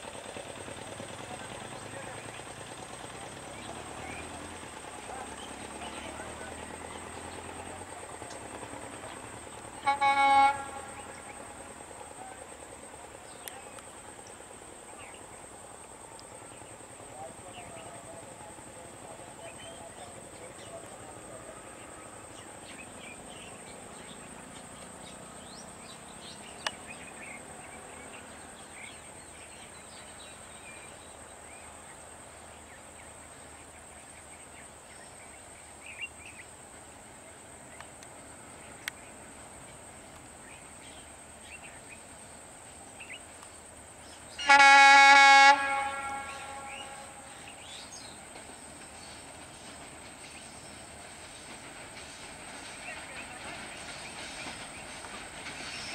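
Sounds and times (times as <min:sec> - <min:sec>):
locomotive horn blast: 0:09.8 - 0:11.4, 0:44.4 - 0:47.6.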